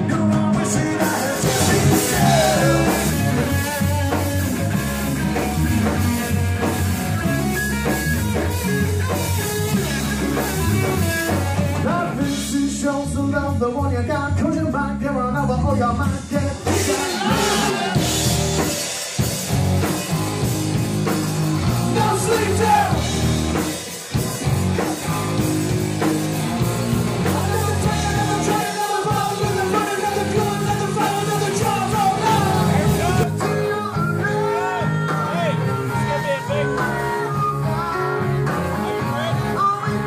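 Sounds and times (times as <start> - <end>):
person singing lead vocals: 0.0 - 5.4, 11.3 - 19.3, 21.6 - 23.8, 27.1 - 40.0
drum kit: 0.0 - 14.8, 15.5 - 40.0
electric guitars: 0.0 - 15.1, 15.8 - 40.0
bass guitar: 0.0 - 40.0.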